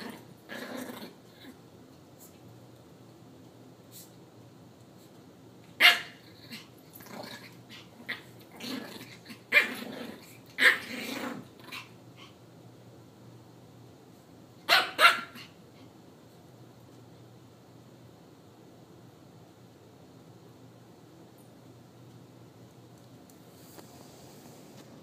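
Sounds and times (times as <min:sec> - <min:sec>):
dogs growling and snapping: 0:00.0 - 0:01.6, 0:06.4 - 0:11.9
dog barking: 0:05.8 - 0:06.2, 0:14.7 - 0:15.5.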